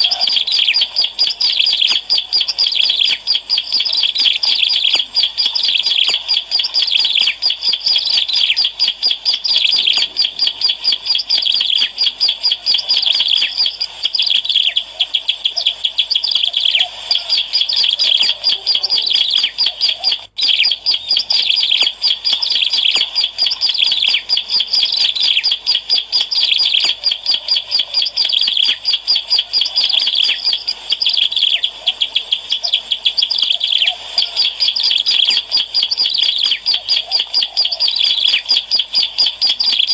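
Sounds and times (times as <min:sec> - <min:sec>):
bird singing chirps and trills: 0:00.0 - 0:39.9.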